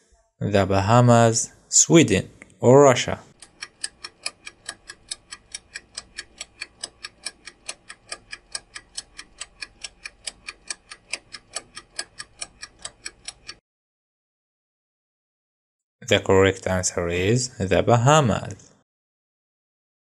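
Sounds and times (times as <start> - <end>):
timer ticking: 3.3 - 13.6.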